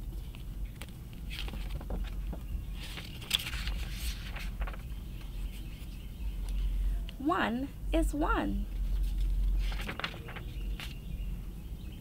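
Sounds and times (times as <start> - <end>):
low steady rumble: 0.0 - 12.0
paper rustling: 0.3 - 6.0, 8.7 - 11.0.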